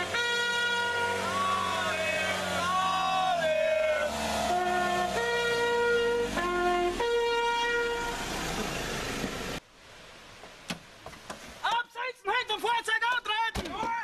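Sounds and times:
multi-tone fire truck horn: 0.0s - 8.4s
engine running: 0.0s - 9.6s.

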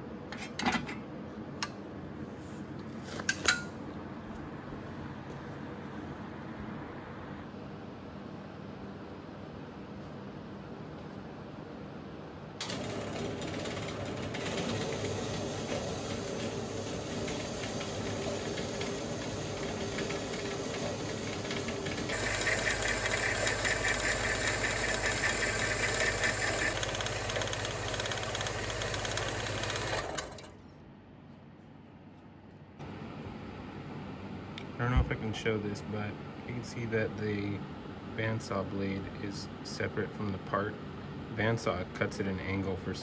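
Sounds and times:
bandsaw cutting steel tubing: 14.6s - 30.5s.

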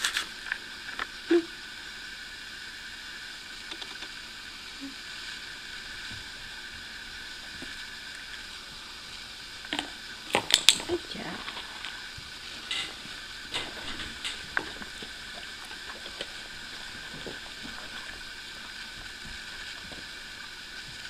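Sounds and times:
room noise hiss: 0.0s - 21.0s.

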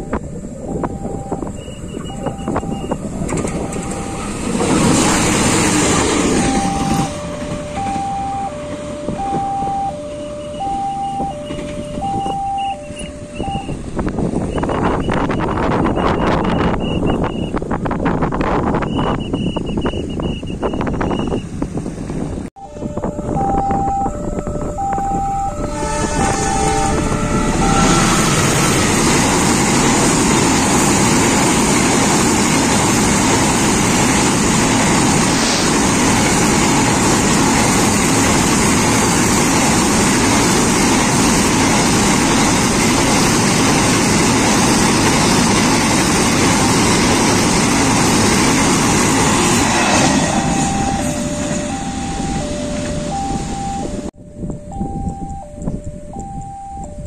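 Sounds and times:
level crossing alarm beeping: 0.0s - 17.6s, 18.7s - 21.5s, 22.6s - 57.0s
train wheels rumbling on rails: 0.0s - 56.0s
train horn: 22.6s - 32.5s, 49.3s - 52.5s.

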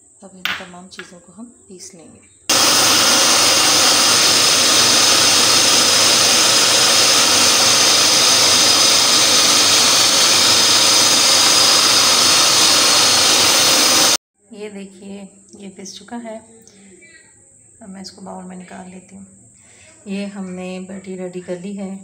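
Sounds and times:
food processor motor whirring: 2.5s - 14.2s.

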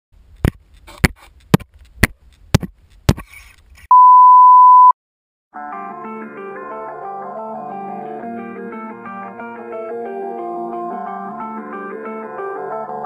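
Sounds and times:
guitar music: 5.6s - 13.0s.

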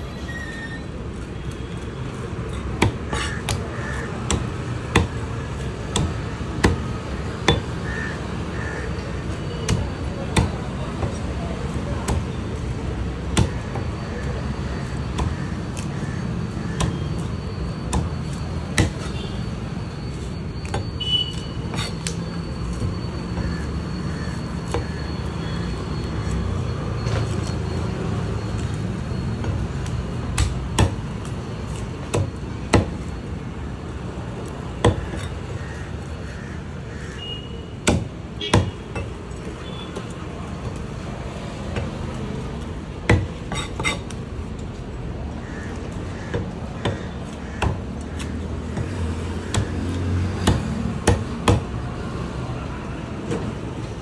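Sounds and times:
street traffic rumble: 0.0s - 54.0s
knife chopping fish on wood: 2.7s - 7.8s, 9.6s - 11.3s, 12.0s - 12.4s, 13.3s - 14.3s, 15.1s - 15.9s, 37.8s - 38.8s, 46.2s - 51.7s.

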